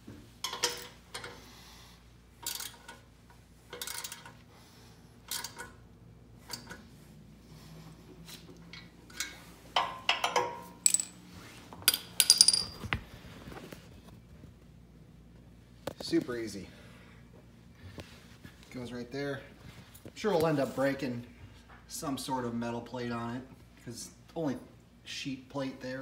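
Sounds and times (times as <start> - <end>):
metallic clinks and clanks: 9.1 - 11.2, 11.9 - 12.8.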